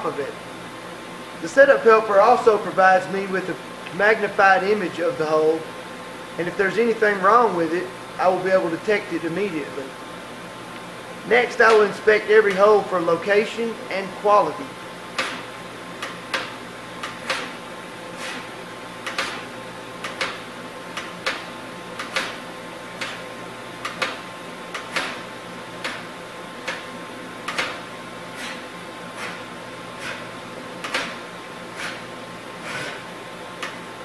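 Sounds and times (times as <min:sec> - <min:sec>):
machine steady hum: 0:00.0 - 0:34.0
machine axis short whir: 0:32.6 - 0:33.1.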